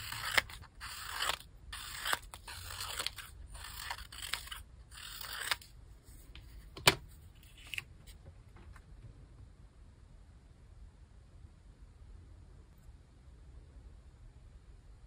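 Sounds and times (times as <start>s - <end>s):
scissors snipping paper: 0.0s - 5.7s
faint paper handling: 0.0s - 8.8s.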